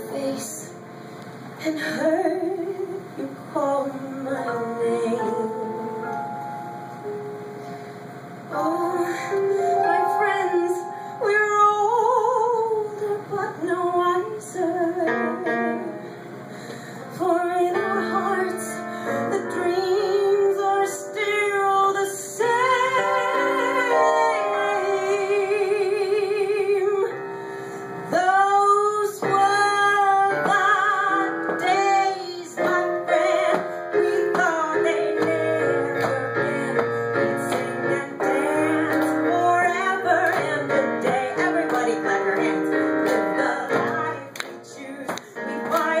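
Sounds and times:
woman singing into microphone: 0:00.0 - 0:00.8, 0:01.6 - 0:06.2, 0:08.5 - 0:16.0, 0:17.1 - 0:27.2, 0:28.1 - 0:46.0
electronic keyboard: 0:04.6 - 0:11.8.

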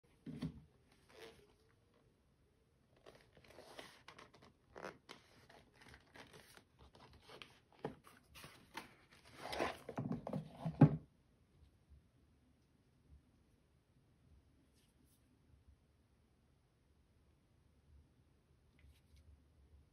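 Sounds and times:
leather holster rubbing: 0:01.1 - 0:01.5.

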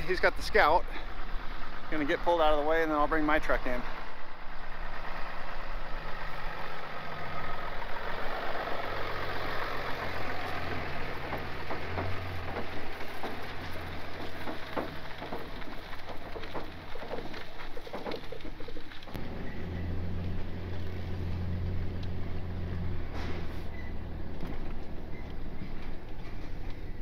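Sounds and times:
pickup truck engine running: 0:00.0 - 0:27.0
knocks: 0:11.1 - 0:19.1.

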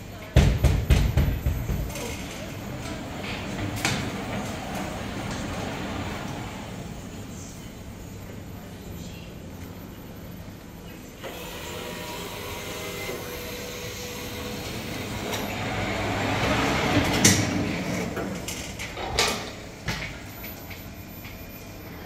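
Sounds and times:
machine carriage running: 0:01.0 - 0:07.3, 0:11.3 - 0:20.2.

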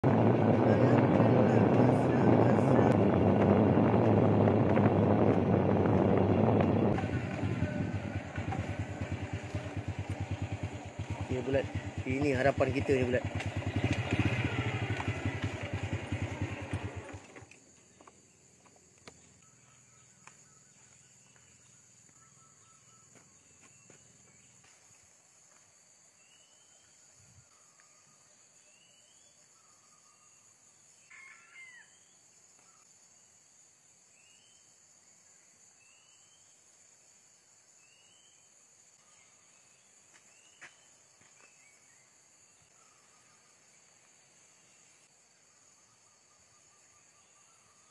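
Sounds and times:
motorcycle engine running: 0:00.0 - 0:18.1.

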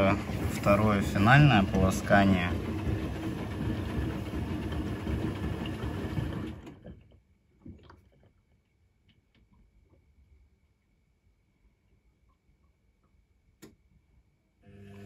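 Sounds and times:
washing machine drum with water sloshing: 0:00.0 - 0:08.7.

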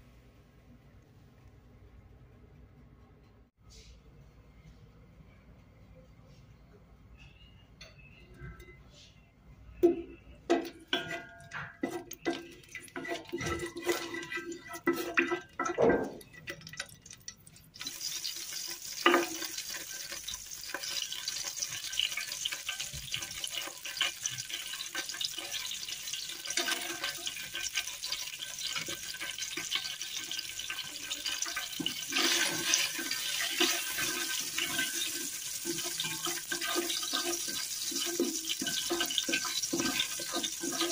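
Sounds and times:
spices sizzling in hot oil: 0:10.9 - 0:40.9.

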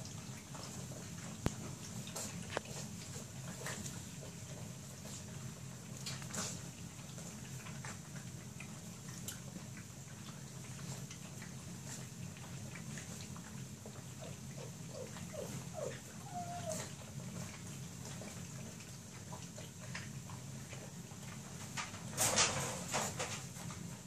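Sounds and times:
puppies feeding clicks: 0:00.0 - 0:24.0
puppy whining: 0:14.2 - 0:17.5
puppy squeaking: 0:15.0 - 0:16.9.

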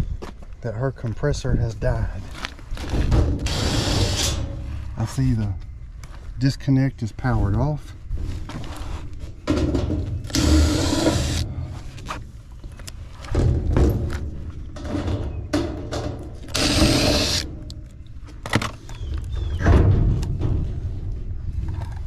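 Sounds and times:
rumbling handling noise: 0:00.0 - 0:22.0
short rasping bursts: 0:10.3 - 0:11.5, 0:16.5 - 0:17.5
knocks and clicks on sheet metal: 0:13.3 - 0:17.8.

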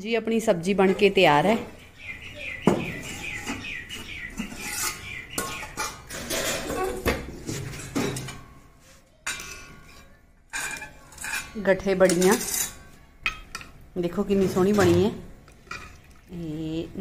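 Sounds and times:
ladle scraping inside pot: 0:04.4 - 0:08.4
pot and lid clanking: 0:04.4 - 0:08.6.

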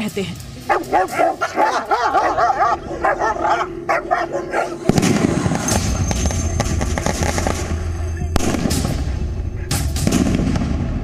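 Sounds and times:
dogs barking and yelping: 0:00.6 - 0:08.4, 0:09.0 - 0:09.9
noisy rush: 0:00.6 - 0:11.0.

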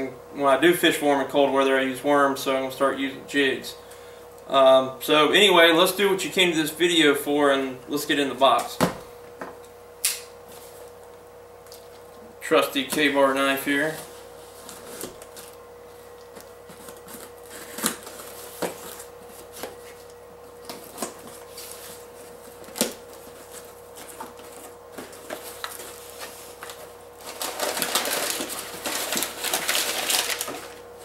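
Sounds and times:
packing paper rustling: 0:13.7 - 0:31.0
knife cutting packing tape: 0:16.7 - 0:19.8.

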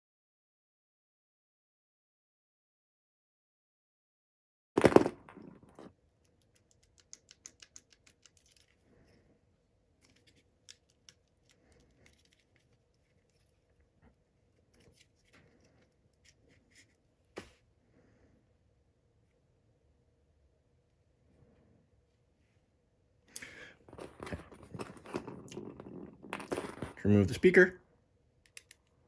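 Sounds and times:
light clicks and scratches: 0:05.7 - 0:09.3, 0:10.0 - 0:17.6.

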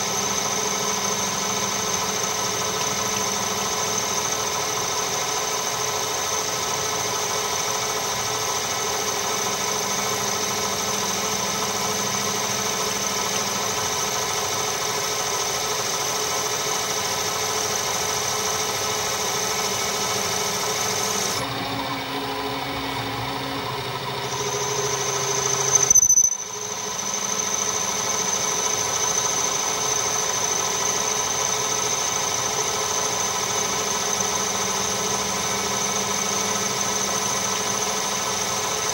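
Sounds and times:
metal lathe whine: 0:00.0 - 0:38.9.

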